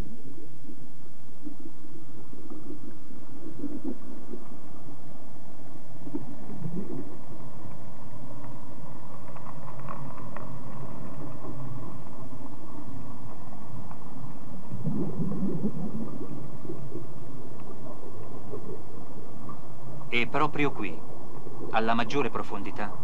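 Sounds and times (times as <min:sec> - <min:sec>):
underwater suction hose rumbling: 0:00.3 - 0:07.6, 0:14.4 - 0:19.7.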